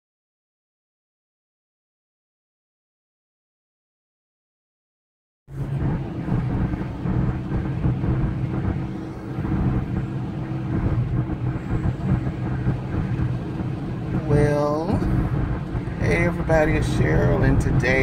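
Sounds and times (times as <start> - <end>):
car engine and tyre hum: 5.5 - 18.0.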